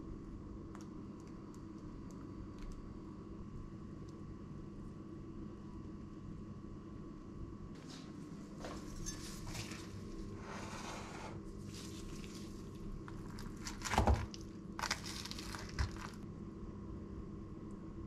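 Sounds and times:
utensils scraping and clinking on bowl: 8.9s - 9.8s
salad rustling in a bowl: 11.6s - 16.2s.

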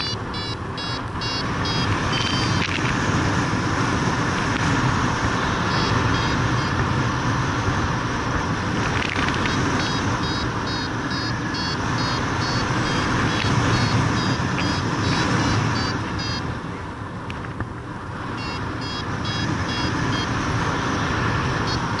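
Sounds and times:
variometer beeping rapidly: 0.0s - 2.8s, 5.5s - 7.0s, 9.4s - 16.5s, 18.3s - 20.5s, 21.3s - 22.0s
wind rushing over microphone: 0.0s - 22.0s.

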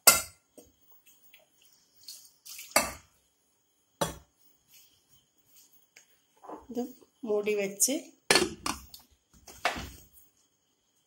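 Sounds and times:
metal knocks of pot and utensils: 0.0s - 0.4s, 8.3s - 8.9s
water poured into pot: 1.0s - 3.1s.

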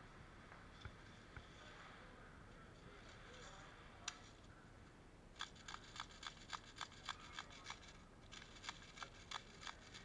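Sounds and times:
sharp repeating clicks: 5.4s - 10.0s.

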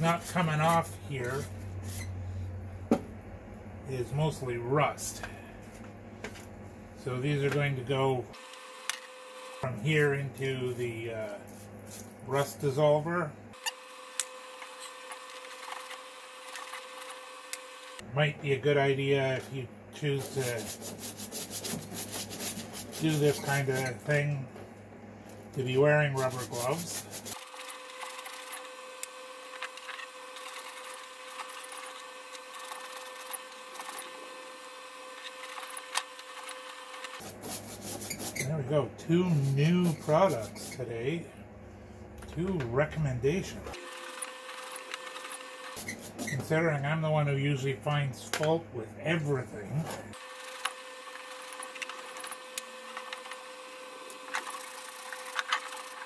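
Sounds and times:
electric pump humming: 7.0s - 18.2s, 18.8s - 46.7s, 50.1s - 56.0s
scrubbing metal parts: 20.0s - 24.3s, 25.6s - 28.7s.

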